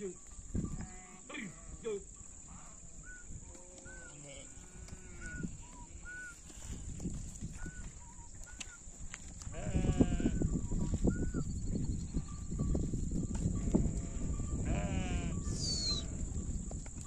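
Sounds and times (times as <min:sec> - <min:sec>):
cattle lowing: 0:00.6 - 0:10.5.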